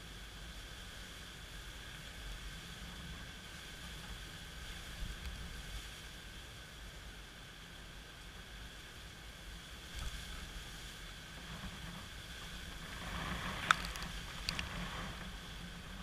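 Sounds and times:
steady rain: 0.0s - 16.0s
gusty wind buffeting microphone: 9.6s - 16.0s.

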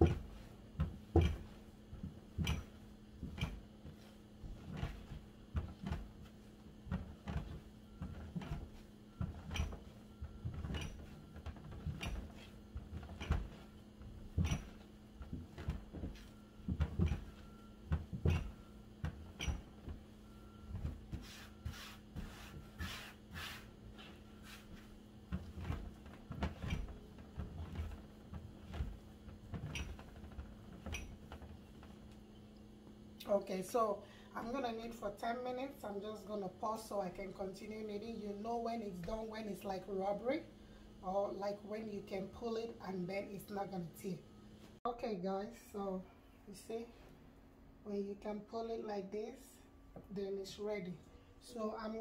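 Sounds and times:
dough kneading thumps: 0.0s - 33.8s
steady low hum: 0.0s - 52.0s.

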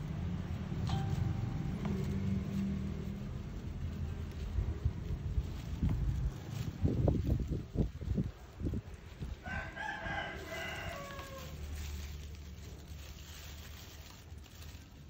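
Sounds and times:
rooster crowing: 9.4s - 11.6s.

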